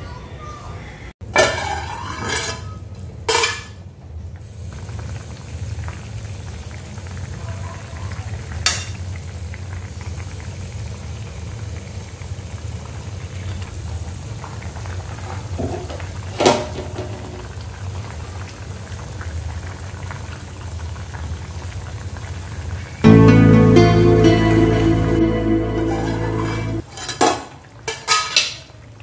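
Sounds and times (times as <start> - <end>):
curry simmering and bubbling: 4.0 - 23.0.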